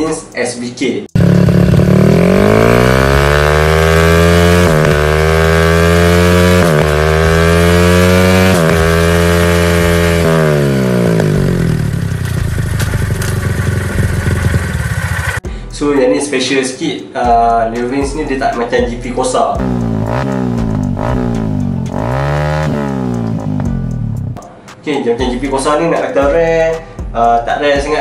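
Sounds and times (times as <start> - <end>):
motorcycle engine revving: 1.1 - 15.4, 19.6 - 24.4.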